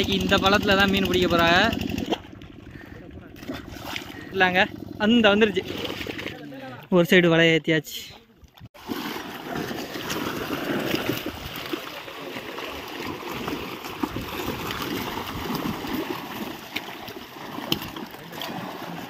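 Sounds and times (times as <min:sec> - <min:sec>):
fish thrashing and splashing: 0:01.7 - 0:04.4, 0:05.4 - 0:06.6, 0:08.4 - 0:19.0.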